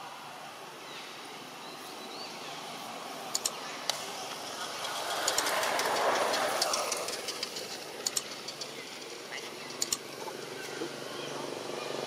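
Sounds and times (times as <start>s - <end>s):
passing vehicle engine: 2.6s - 12.0s
sharp high clicks: 3.3s - 10.2s.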